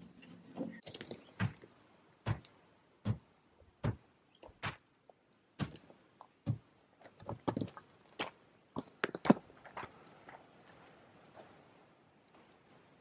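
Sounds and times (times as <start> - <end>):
hand tool striking stone rubble: 5.6 - 5.9.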